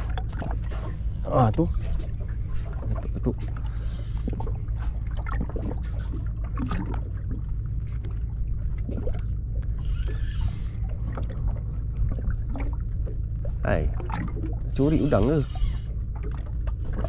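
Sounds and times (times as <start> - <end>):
boat rumbling: 0.0 - 17.0.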